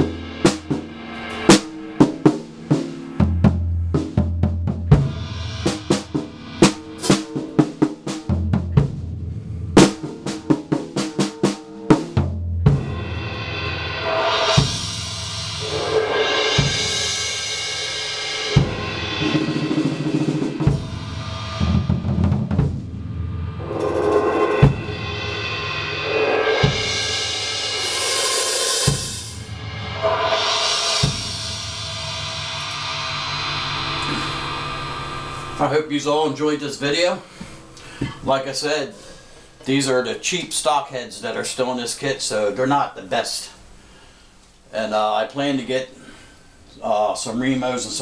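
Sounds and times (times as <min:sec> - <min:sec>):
snare and tom drumming: 0:00.0 - 0:09.0
bass drum hits: 0:00.0 - 0:11.0, 0:12.2 - 0:17.4, 0:18.6 - 0:27.6, 0:28.9 - 0:35.8
crash cymbals: 0:00.0 - 0:11.9, 0:12.7 - 0:38.0.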